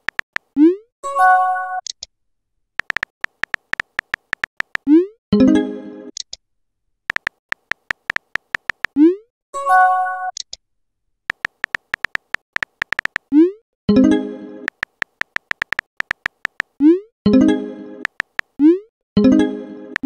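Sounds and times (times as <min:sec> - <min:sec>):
electronic key-tap clicks: 0:00.0 - 0:00.5, 0:02.8 - 0:04.9, 0:07.1 - 0:09.0, 0:11.3 - 0:13.3, 0:14.7 - 0:16.8, 0:18.0 - 0:18.6.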